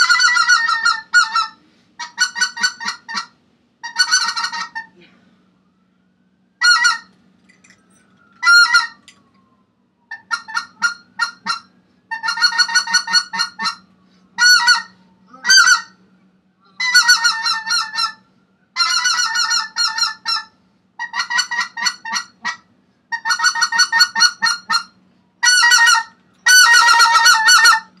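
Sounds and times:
goose yelping calls: 0.0 - 5.0, 6.6 - 7.1, 8.4 - 9.0, 10.1 - 13.8, 14.4 - 16.0, 16.8 - 18.2, 18.8 - 28.0.

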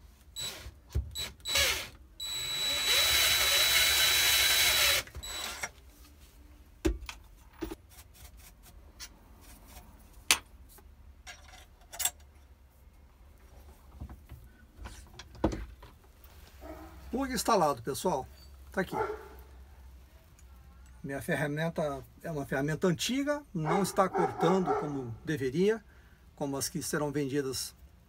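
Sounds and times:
cordless drill whining: 0.4 - 5.7
tools clicking and knocking: 11.2 - 12.5.

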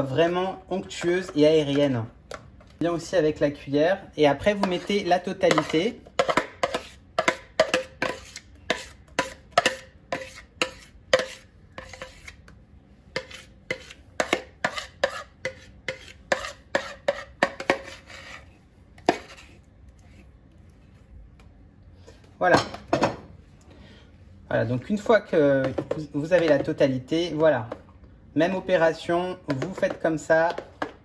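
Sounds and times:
metal spoon scraping a bowl: 4.5 - 12.4, 13.1 - 20.3.

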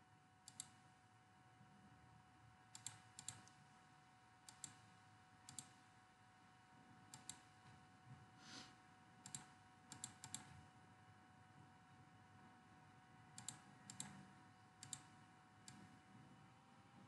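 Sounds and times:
computer mouse clicks: 0.4 - 0.8, 2.7 - 3.6, 4.4 - 5.8, 7.1 - 7.6, 9.2 - 10.5, 13.3 - 16.0.

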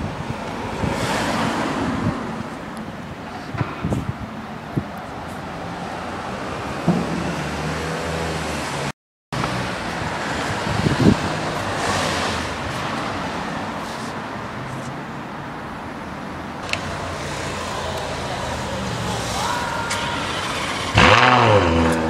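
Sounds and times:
street noise: 0.0 - 22.0
car engine idling: 16.6 - 21.4.

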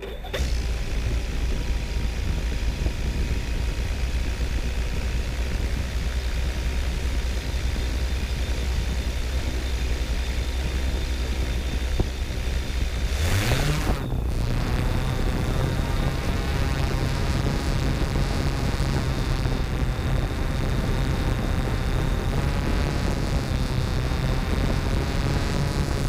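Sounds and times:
drone motors humming: 0.0 - 26.0.

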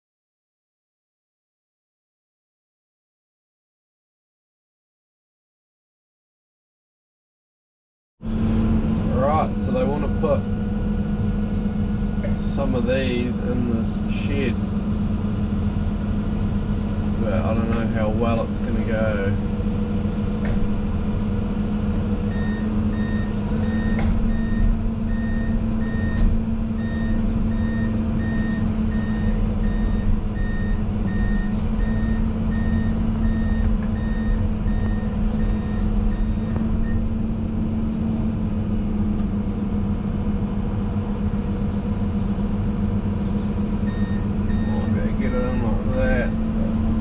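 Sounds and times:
diesel engine running: 8.2 - 47.0
travel alarm beeping: 22.2 - 37.1, 43.8 - 45.9.

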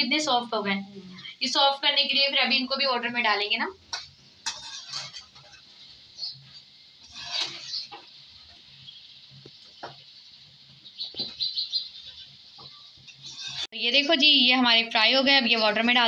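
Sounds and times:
fritters sizzling in oil: 0.0 - 16.0
metal spoon scraping pan: 4.0 - 8.5, 12.0 - 14.4, 15.3 - 16.0.

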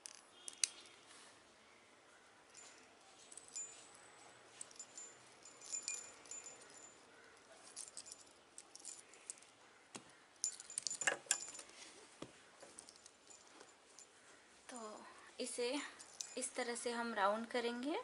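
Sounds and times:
small bell tinkling: 2.4 - 9.6, 10.4 - 11.9, 12.7 - 17.2
key ring clinking: 2.5 - 9.6, 10.4 - 11.8, 16.0 - 16.6.

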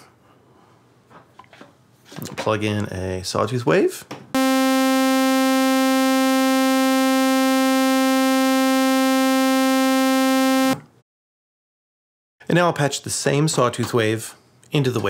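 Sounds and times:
bright buzzing synthesizer note: 4.4 - 10.8.

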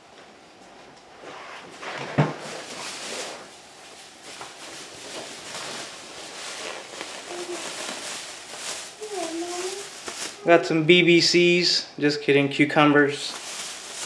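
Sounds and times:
plastic bags rustling: 2.3 - 11.3, 12.9 - 14.0.

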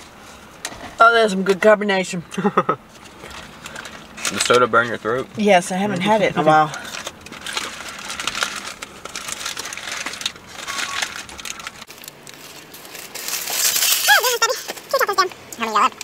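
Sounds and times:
foil wrapper crinkling: 3.0 - 5.2, 6.6 - 15.3.

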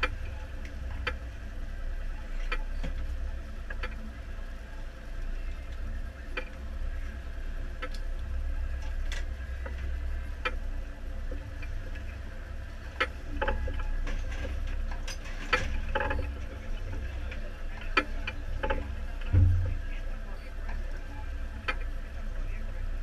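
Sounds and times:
boat low rumble: 0.0 - 23.0.

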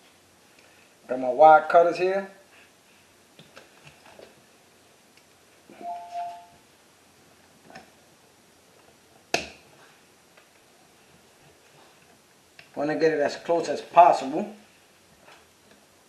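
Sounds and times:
brief high tone: 5.7 - 6.6.

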